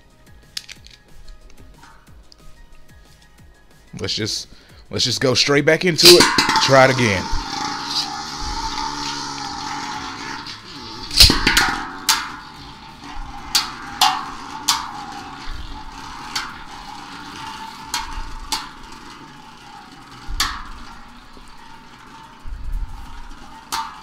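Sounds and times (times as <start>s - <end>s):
spinning tops clacking: 6.0s - 24.0s
whir of spinning tops: 6.0s - 24.0s.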